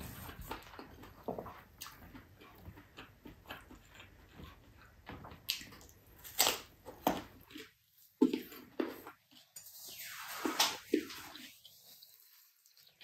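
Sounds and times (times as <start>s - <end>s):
chewing and lip smacks: 0.1s - 9.6s.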